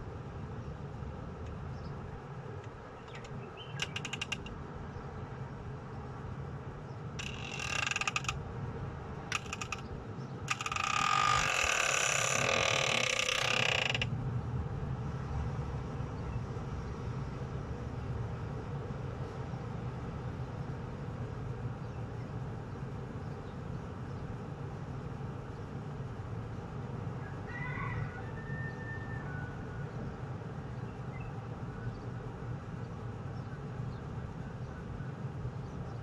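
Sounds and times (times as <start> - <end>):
mechanical clicking and creaking: 2.6 - 4.6, 7.2 - 8.4, 9.3 - 9.9, 10.5 - 14.1.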